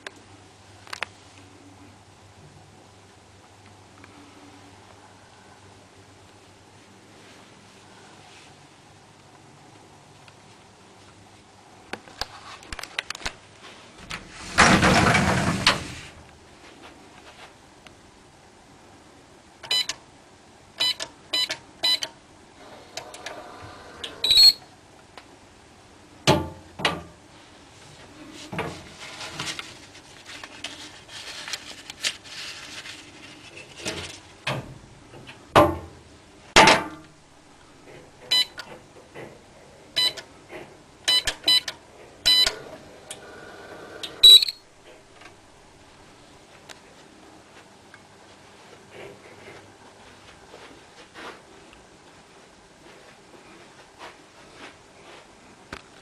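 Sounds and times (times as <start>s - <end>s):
safe keypad beeping: 19.7s - 20.0s, 20.8s - 22.1s, 38.3s - 38.6s, 40.0s - 40.2s, 41.1s - 41.7s, 42.3s - 42.6s, 44.2s - 44.6s
banknotes rustling: 28.4s - 34.4s.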